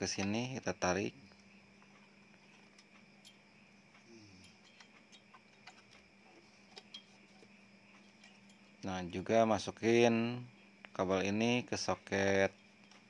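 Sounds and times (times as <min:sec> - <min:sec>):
faint steady hum: 0:00.0 - 0:13.0
small metal clicks and taps: 0:01.3 - 0:08.8.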